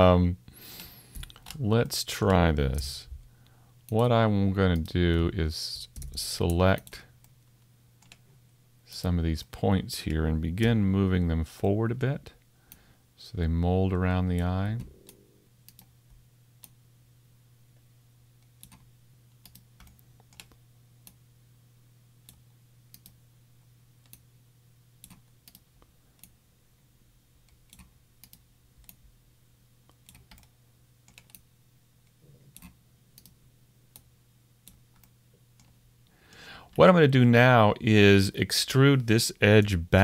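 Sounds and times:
faint low hum: 0.0s - 40.0s.

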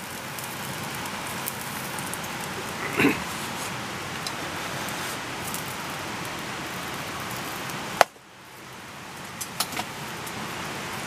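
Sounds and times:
crackling pops: 0.0s - 8.2s
meat sizzling on a grill: 0.0s - 11.0s.

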